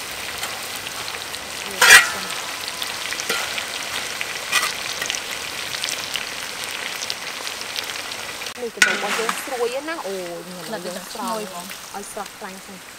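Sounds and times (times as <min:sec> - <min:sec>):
grasshoppers sizzling in oil: 0:00.0 - 0:12.9
metal spatula scraping wok: 0:01.7 - 0:05.4.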